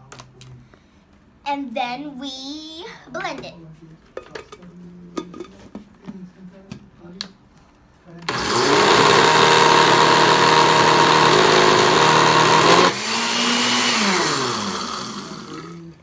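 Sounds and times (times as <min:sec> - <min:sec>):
blender motor running: 0:08.3 - 0:16.0.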